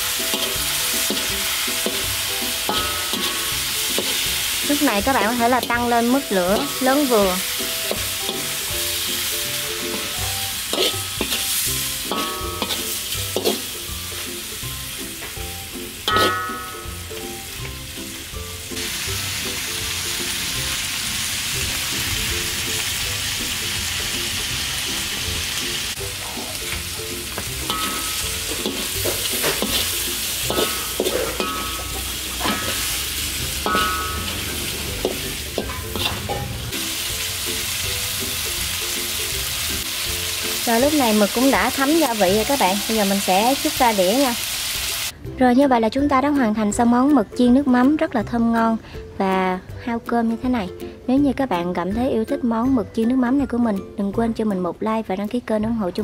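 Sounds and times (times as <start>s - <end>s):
metal skimmer scraping a wok: 0.0s - 14.3s, 16.0s - 16.6s, 26.7s - 37.8s
squid sizzling in a wok: 0.0s - 45.2s.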